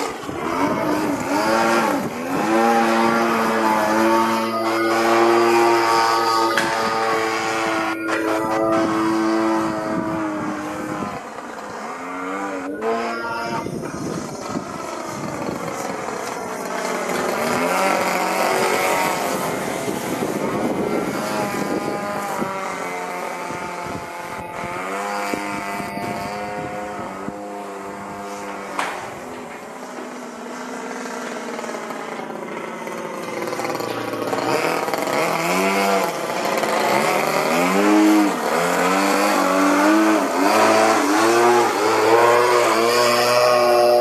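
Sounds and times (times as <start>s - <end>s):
model plane engine: 0.0s - 44.0s.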